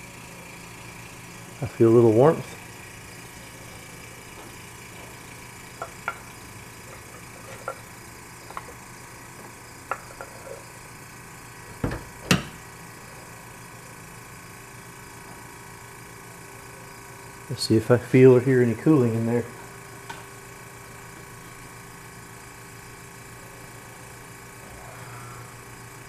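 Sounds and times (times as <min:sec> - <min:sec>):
refrigerator compressor humming: 0:00.0 - 0:26.0.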